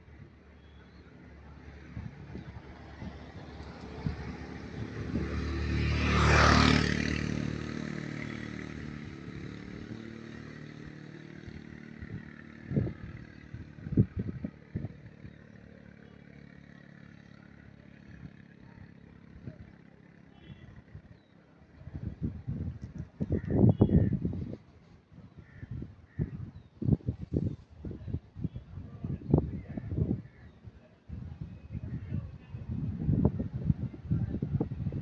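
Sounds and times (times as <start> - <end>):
vehicle passing by: 1.2 - 21.1.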